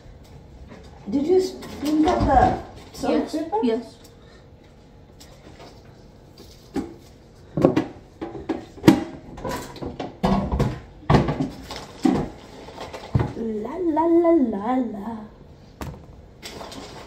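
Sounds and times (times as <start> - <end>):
utensils and containers clattering: 7.6 - 13.4, 16.4 - 17.0.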